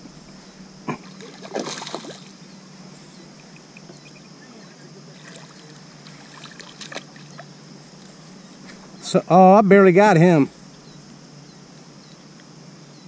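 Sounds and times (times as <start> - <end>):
water sounds: 0.8 - 2.4, 4.5 - 7.7
fish splashing at water surface: 0.9 - 2.3, 5.1 - 7.5.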